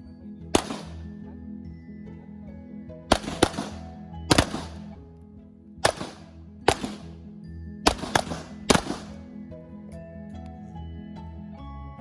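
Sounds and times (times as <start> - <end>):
background music: 0.0 - 12.0
pistol shots with echo: 0.6 - 1.1, 3.1 - 4.9, 5.8 - 7.2, 7.9 - 9.3.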